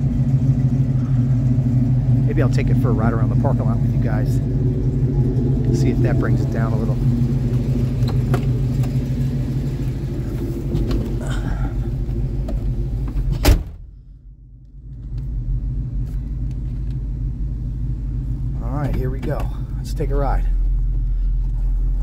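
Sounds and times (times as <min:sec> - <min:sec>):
car engine idling: 0:00.0 - 0:22.0
truck door slamming: 0:13.1 - 0:13.9.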